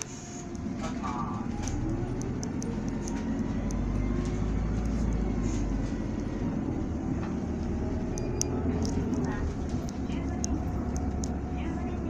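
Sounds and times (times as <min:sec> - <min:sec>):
bus diesel engine running: 0:00.0 - 0:12.0
road noise: 0:00.0 - 0:12.0
light rattling ticks: 0:01.7 - 0:05.3, 0:08.1 - 0:12.0.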